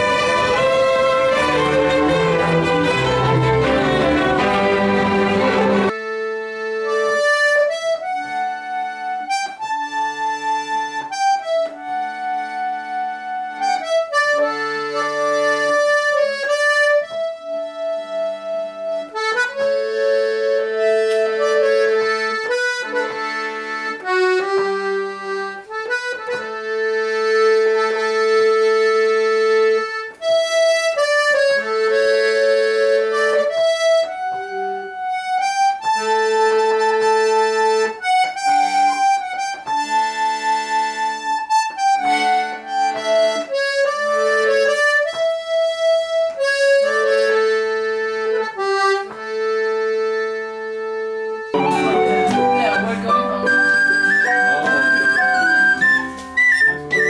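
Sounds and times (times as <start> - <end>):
string ensemble: 0.0 - 6.0, 51.6 - 56.3
button accordion slow air: 0.0 - 57.0.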